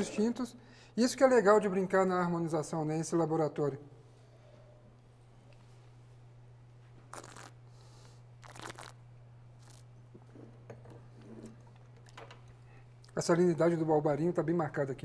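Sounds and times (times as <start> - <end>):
low steady hum: 0.0 - 15.0
sipping and sniffing wine: 7.1 - 9.0.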